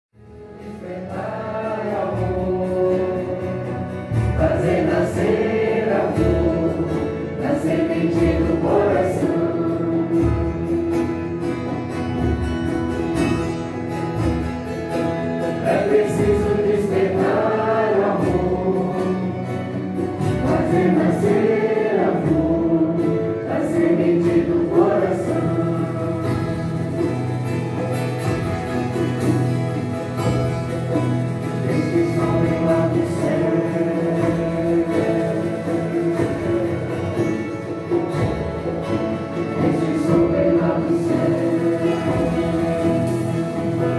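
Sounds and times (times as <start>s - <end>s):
group singing a hymn in unison: 0.5s - 12.4s, 15.4s - 43.9s.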